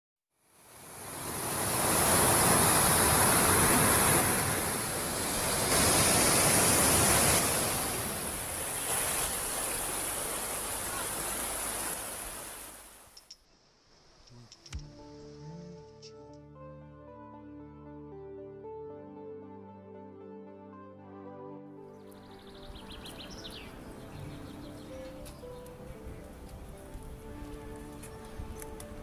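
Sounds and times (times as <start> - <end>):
water rushing over a weir: 0.6 - 13.2.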